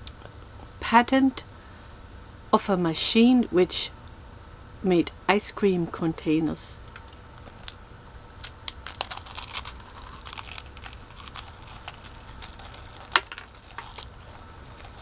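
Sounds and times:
crunching a dry waffle cone: 8.4 - 15.0.

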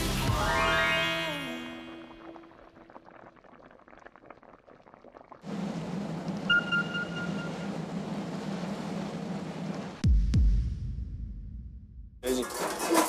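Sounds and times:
rushing water: 1.5 - 10.0
sauce simmering with popping bubbles: 2.0 - 5.6
ship engine drone: 5.4 - 10.0
brief high tone: 6.5 - 7.6.

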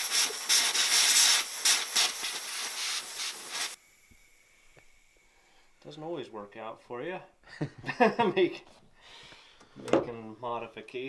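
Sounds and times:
loud fluttering air hiss: 0.0 - 6.1.

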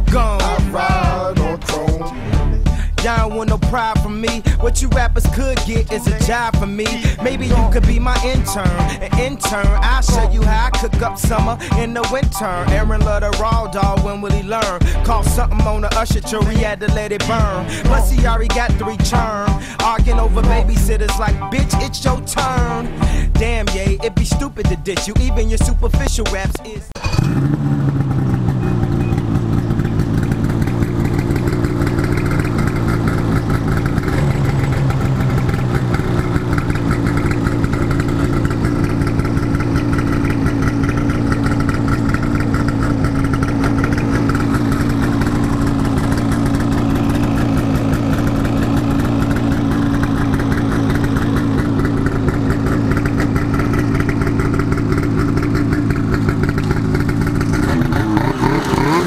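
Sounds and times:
snowmobile engine idling and revving: 0.0 - 59.0.

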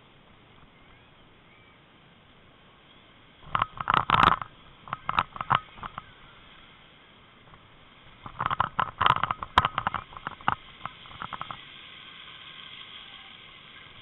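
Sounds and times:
car tyres hissing on wet road: 11.6 - 14.0.

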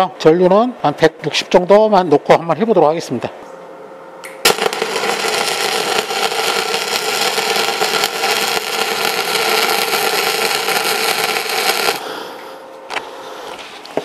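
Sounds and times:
welding arc crackling: 4.2 - 12.6.

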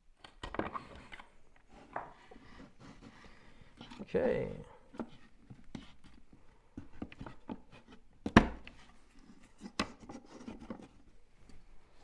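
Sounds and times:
wooden dowels clicking and knocking: 3.6 - 4.2.

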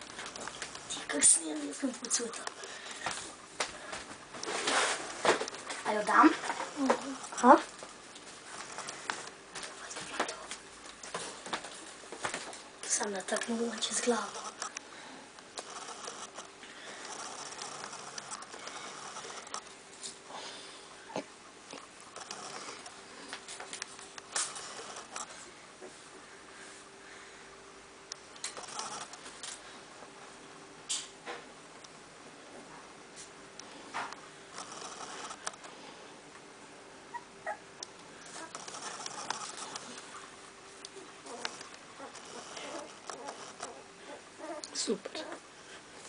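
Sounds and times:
puppies rustling on blanket: 0.0 - 14.8, 38.2 - 46.0
squeaky puppy noises: 37.1 - 37.7.

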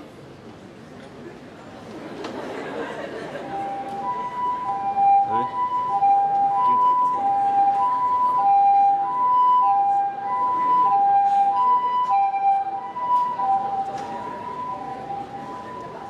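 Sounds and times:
two-tone emergency siren: 3.3 - 16.0.

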